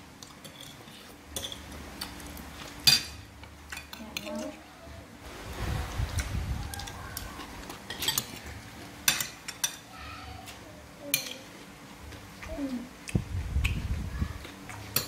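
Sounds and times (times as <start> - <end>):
spoons clinking on ceramic plates: 0.4 - 1.7, 2.8 - 4.6, 6.8 - 8.4, 9.0 - 9.9, 11.1 - 11.5.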